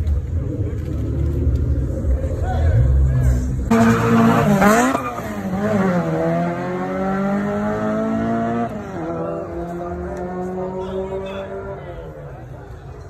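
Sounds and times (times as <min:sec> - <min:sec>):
car engine revving: 0:00.0 - 0:12.2.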